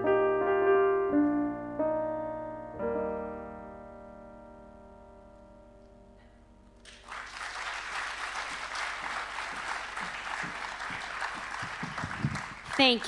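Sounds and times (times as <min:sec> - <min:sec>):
piano chord ringing: 0:00.0 - 0:06.9
audience applauding: 0:06.8 - 0:13.0.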